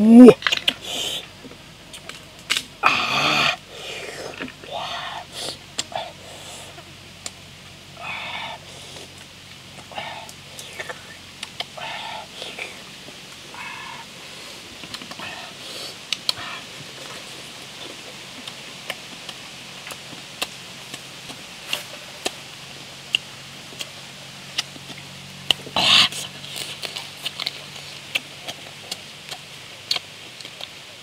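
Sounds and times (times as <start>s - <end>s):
chewing and sucking: 13.5s - 22.4s, 23.1s - 30.9s.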